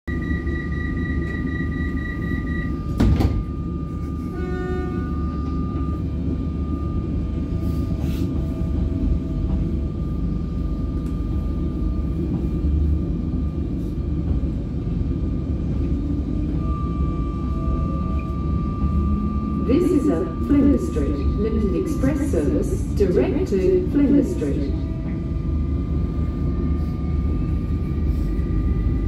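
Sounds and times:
train low rumble: 0.0s - 29.0s
brief tones: 0.1s - 3.6s.

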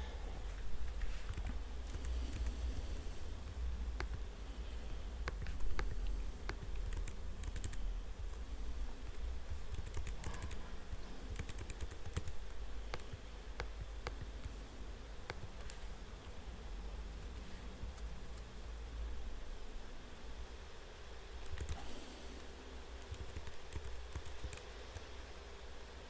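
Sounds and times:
low steady hum: 0.0s - 26.0s
typing on computer keyboard: 1.2s - 2.5s, 5.3s - 7.8s, 9.7s - 10.6s, 11.3s - 13.1s, 21.4s - 21.8s, 23.0s - 24.7s.

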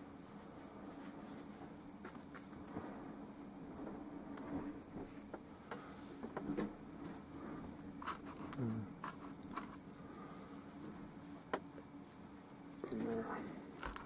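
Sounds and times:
steady low hum: 0.0s - 14.0s
brush scratching on canvas: 0.1s - 2.5s.

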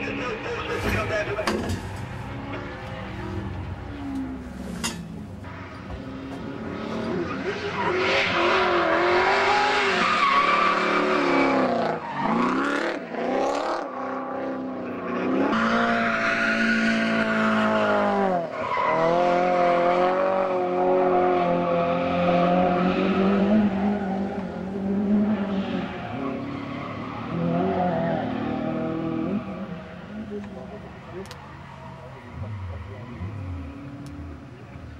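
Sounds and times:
car engines revving: 0.0s - 34.9s.

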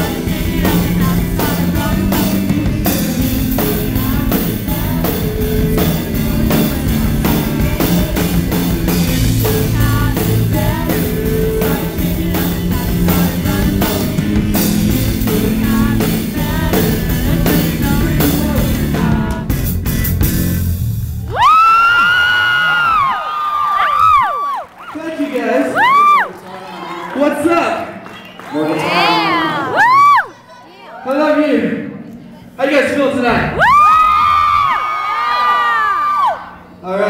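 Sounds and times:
drum and cymbal hits: 0.0s - 21.4s
live rock band playing: 0.0s - 21.4s.

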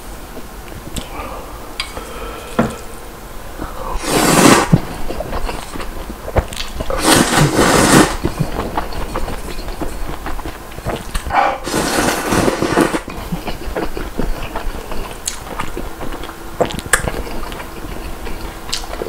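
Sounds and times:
person slurping noodles: 3.6s - 5.9s, 6.8s - 10.0s, 11.2s - 15.4s.

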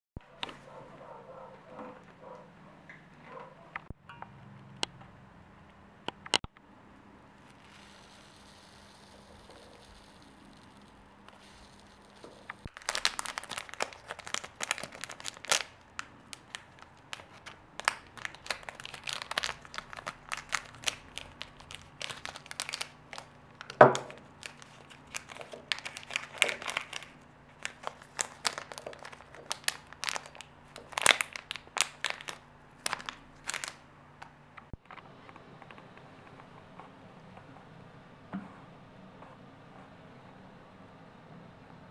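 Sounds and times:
plastic bags crinkling: 7.4s - 33.8s.

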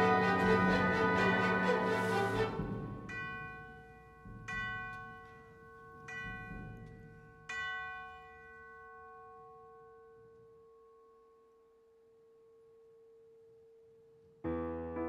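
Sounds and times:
tubular bells ringing: 0.0s - 9.9s.

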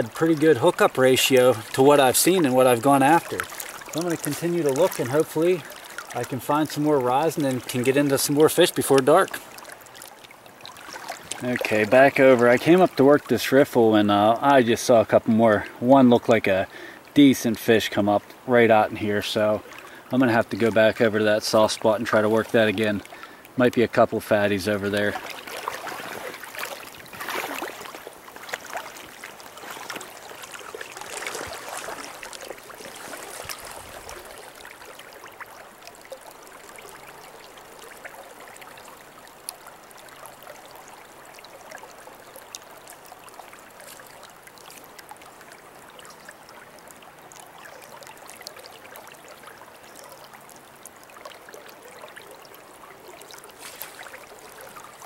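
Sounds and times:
river riffle flowing: 0.0s - 55.0s
splashing from wading: 1.3s - 12.8s, 25.0s - 37.2s, 53.4s - 55.0s.

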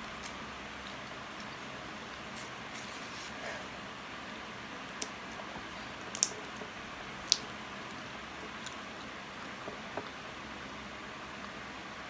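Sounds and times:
person chewing food: 4.7s - 10.2s.

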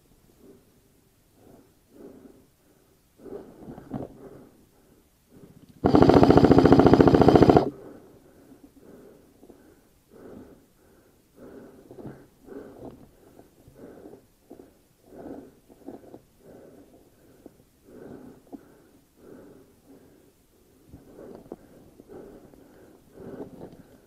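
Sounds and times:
airsoft rifle full-auto burst: 5.8s - 7.7s.

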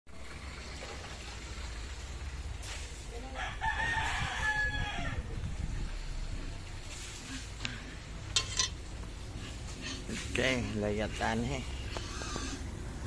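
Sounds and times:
rooster crowing: 3.3s - 5.3s.

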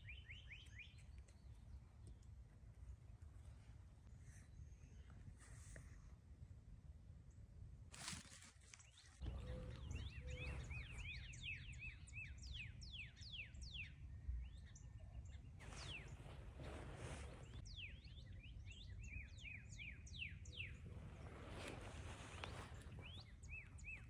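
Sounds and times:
birds chirping: 0.0s - 3.2s, 8.8s - 24.0s.

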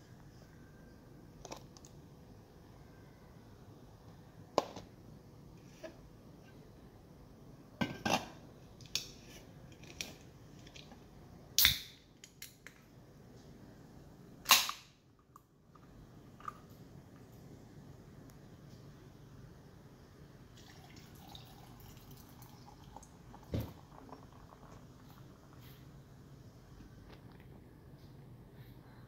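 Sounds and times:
beer can cracked open: 11.6s - 12.4s, 14.5s - 14.9s.

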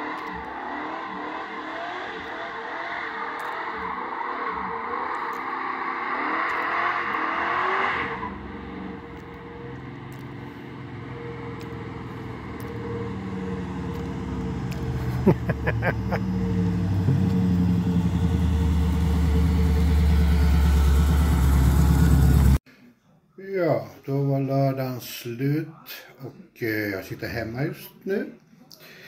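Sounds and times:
car engine approaching: 0.0s - 22.6s
engine crackle: 0.0s - 22.6s.

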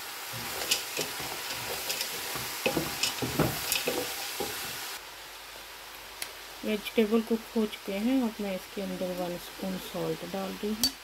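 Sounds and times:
spatula scraping and knocking pan: 0.0s - 4.9s
vegetables sizzling in oil: 0.0s - 11.0s.

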